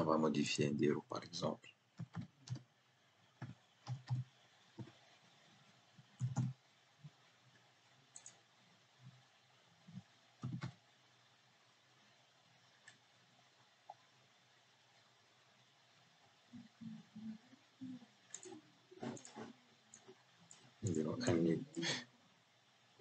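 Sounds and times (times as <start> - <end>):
keyboard keystrokes: 6.2 - 6.6, 10.4 - 10.8.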